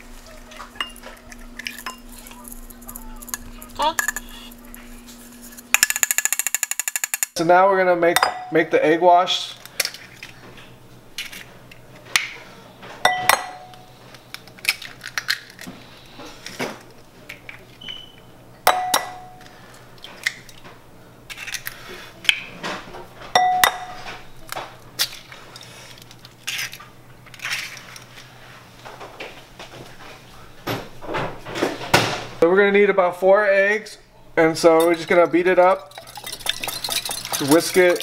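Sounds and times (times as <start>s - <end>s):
eggs cracked against glass bowl: 35.9s - 38.0s.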